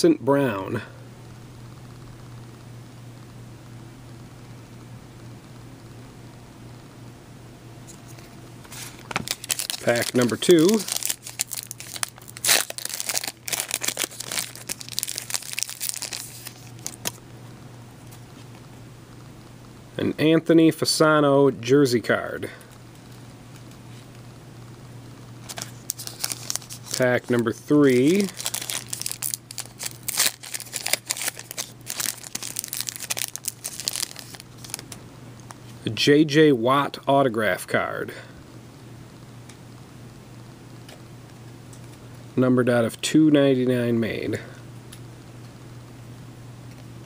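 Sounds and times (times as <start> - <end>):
wrapper tearing and crinkling: 8.8 - 17.2, 25.4 - 35.0.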